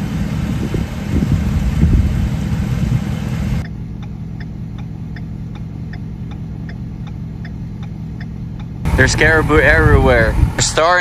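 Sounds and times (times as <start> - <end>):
wind rushing on microphone: 0.0 - 3.6, 8.9 - 11.0
truck engine idling: 0.0 - 11.0
indicator ticking: 3.6 - 8.9.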